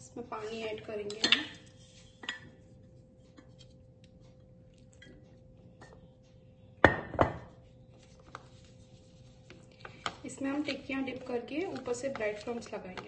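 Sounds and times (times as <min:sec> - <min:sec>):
spoon stirring batter: 0:07.6 - 0:13.0.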